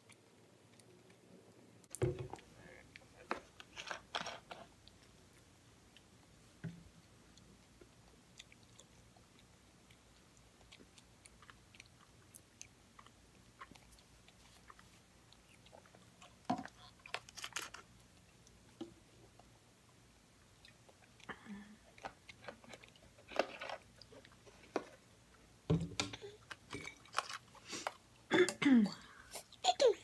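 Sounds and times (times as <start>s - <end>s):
person chewing pastry: 7.2s - 19.6s, 20.4s - 25.4s.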